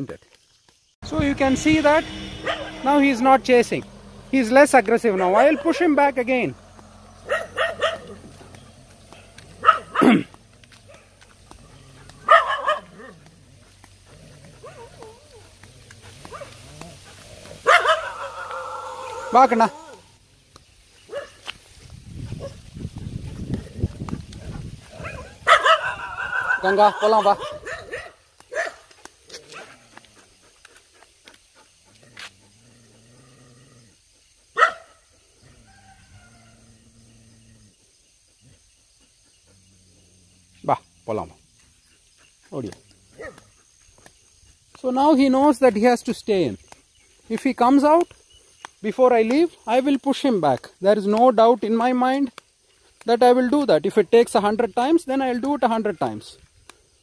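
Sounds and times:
faint low drone: 1.0s - 12.3s
dog barking: 2.4s - 2.8s, 5.0s - 5.9s, 7.0s - 8.6s, 9.2s - 10.3s, 12.0s - 13.3s, 14.6s - 15.4s, 16.2s - 16.6s, 17.5s - 19.4s, 21.1s - 21.4s, 25.0s - 28.9s, 34.6s - 35.0s, 43.1s - 43.6s.

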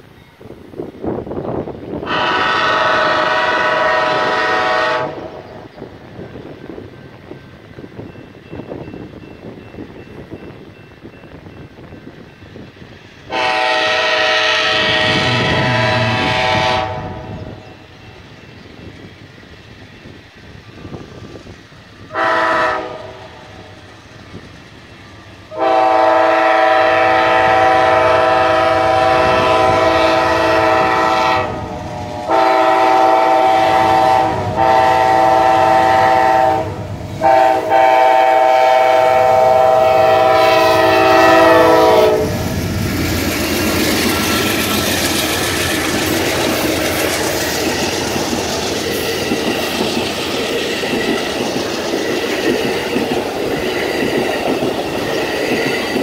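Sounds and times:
locomotive horn blasts: 2.0s - 5.6s, 13.3s - 17.6s, 22.1s - 23.4s, 25.5s - 42.4s
train wheels clicking over rail joints: 41.6s - 56.0s.

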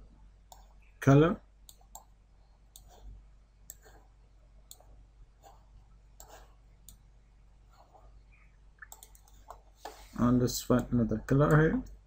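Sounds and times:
low room tone hum: 0.0s - 12.0s
computer mouse clicks: 1.7s - 2.1s, 2.7s - 3.0s, 3.7s - 4.0s, 4.7s - 5.6s, 6.2s - 7.0s, 8.8s - 10.1s.

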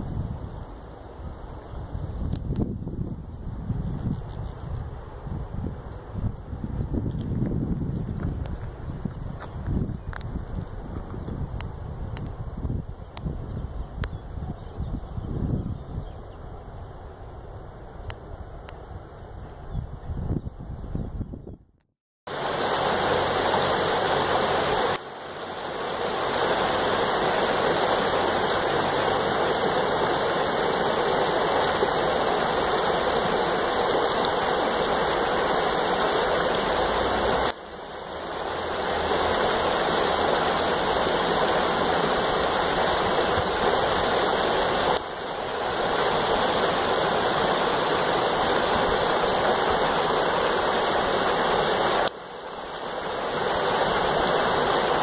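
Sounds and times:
creek rushing over boulders: 22.3s - 55.0s.

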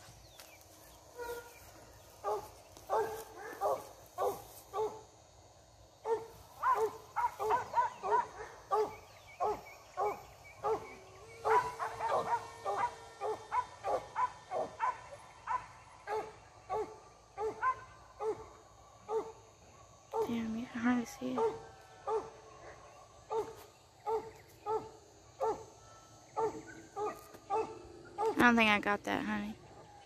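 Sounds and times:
dog barking: 1.2s - 1.5s, 2.2s - 5.0s, 6.0s - 19.4s, 20.1s - 20.3s, 21.3s - 25.8s, 26.4s - 28.4s.

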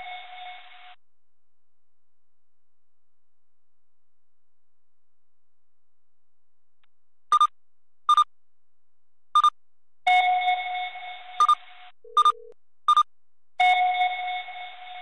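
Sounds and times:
brief lower tone: 11.4s - 12.6s
high double beeps: 11.4s - 13.1s.

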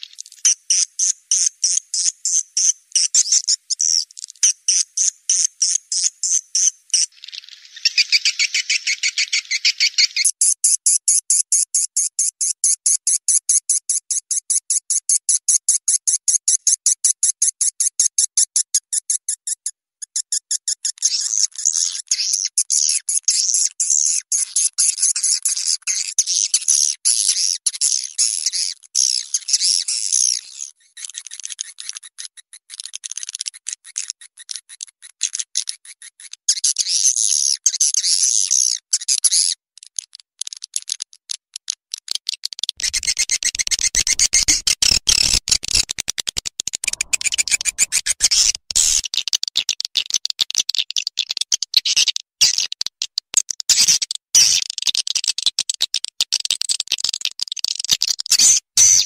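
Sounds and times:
swiftlet calls chirping: 42.8s - 45.3s, 46.8s - 49.0s.

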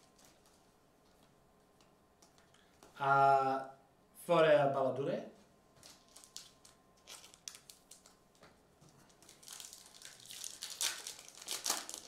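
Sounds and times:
foil wrapper crinkling: 0.0s - 0.6s, 5.8s - 12.0s.

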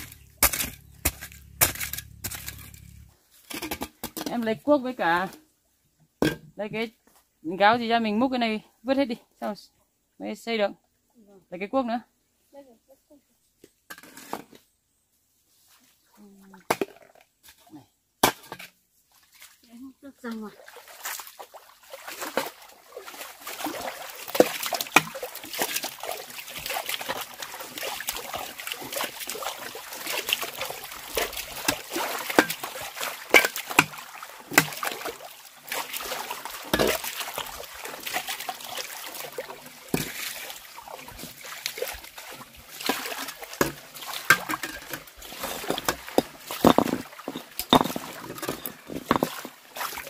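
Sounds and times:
water splashing: 20.4s - 50.0s.

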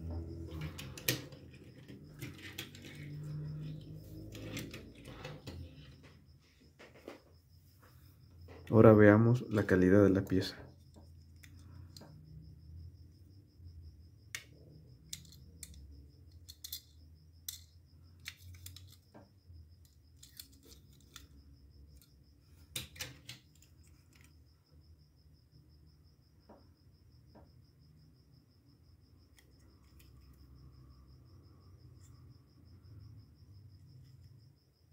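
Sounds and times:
toy truck clicking in fingers: 15.1s - 19.0s.

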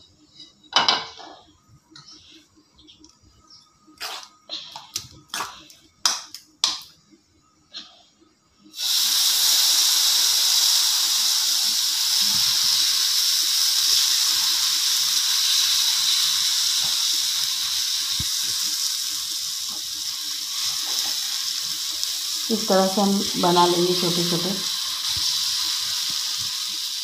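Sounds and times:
batter sizzling in hot oil: 8.7s - 27.0s.

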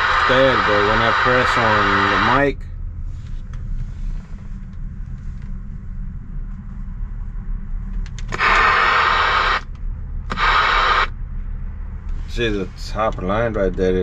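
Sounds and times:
radio static hiss: 0.0s - 2.5s, 8.3s - 9.7s, 10.3s - 11.1s
radio clicks: 8.0s - 11.1s.

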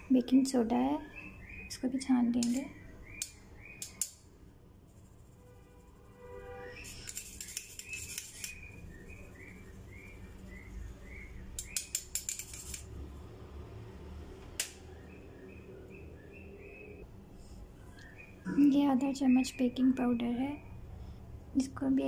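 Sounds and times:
metal spoon scraping wire strainer: 6.6s - 8.8s, 11.6s - 12.9s.

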